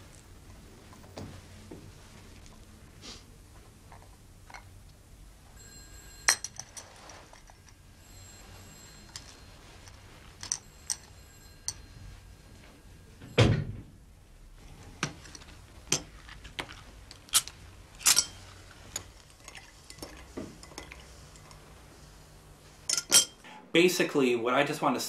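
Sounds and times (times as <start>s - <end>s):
low steady hum: 0.0s - 25.0s
teacups and saucers clinking: 6.0s - 7.8s, 18.0s - 21.6s, 22.9s - 23.4s.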